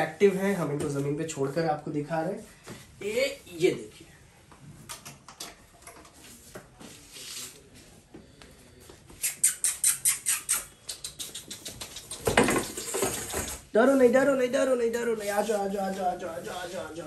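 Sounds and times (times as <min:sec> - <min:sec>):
puppy claws clicking on tiles: 0:09.3 - 0:13.6.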